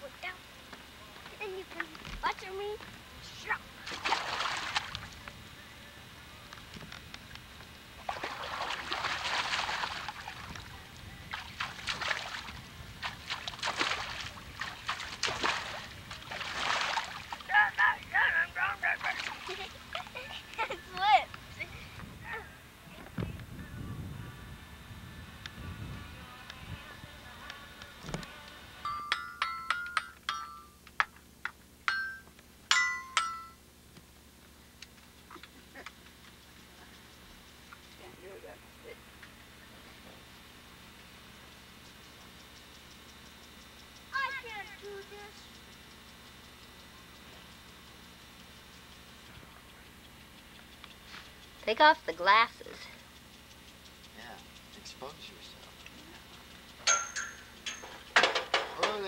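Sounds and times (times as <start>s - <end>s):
water splashing in wading pool: 3.8s - 5.1s, 8.0s - 17.6s, 19.0s - 20.2s
toy xylophone notes: 28.8s - 30.8s.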